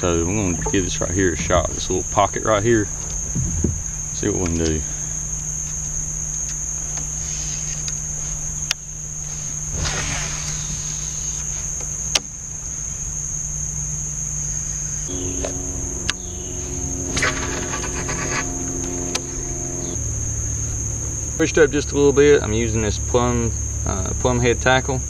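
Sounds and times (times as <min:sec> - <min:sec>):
high-pitched insect chorus: 0:00.0 - 0:25.0
fishing reel whirring: 0:15.1 - 0:20.8.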